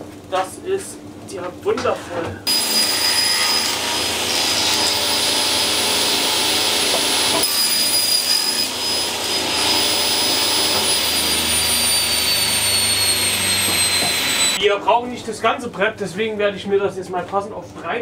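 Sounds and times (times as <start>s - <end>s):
table saw whining: 2.5s - 14.6s
dust extractor running: 3.6s - 7.4s, 8.8s - 14.6s.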